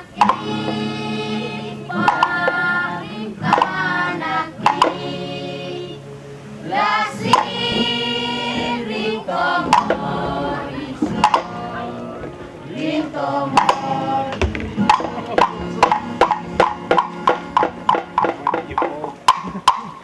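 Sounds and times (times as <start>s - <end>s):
group singing in harmony: 0.0s - 18.7s
sharp percussion strikes: 13.5s - 20.0s.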